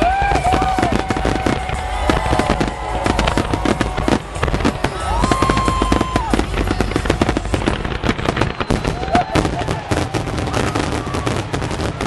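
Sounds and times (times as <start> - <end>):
fireworks bursting with crackles: 0.0 - 12.0.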